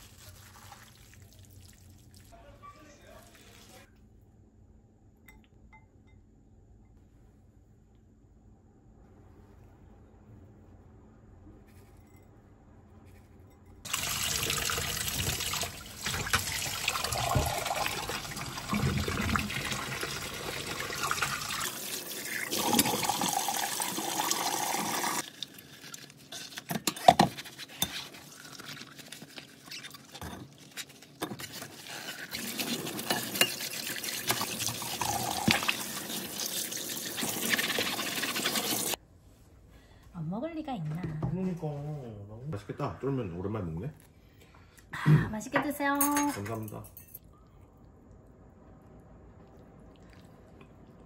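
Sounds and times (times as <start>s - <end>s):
water running from a tap: 13.9s - 26.0s, 32.0s - 39.0s.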